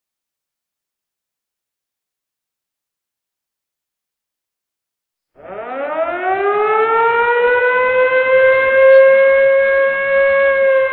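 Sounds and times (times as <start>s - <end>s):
long wailing tone: 5.4s - 10.9s.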